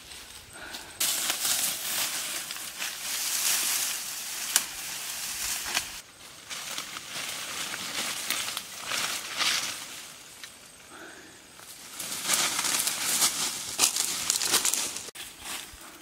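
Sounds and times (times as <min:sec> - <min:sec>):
dry leaves rustling underfoot: 0:00.0 - 0:10.7, 0:11.6 - 0:16.0
dry stems snapping: 0:04.4 - 0:04.8, 0:05.5 - 0:09.8, 0:12.0 - 0:15.1.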